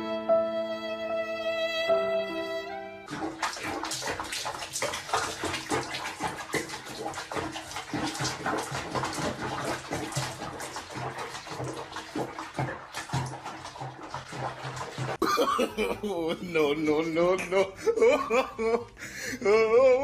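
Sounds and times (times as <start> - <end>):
water splashing in a basin: 3.1 - 15.4.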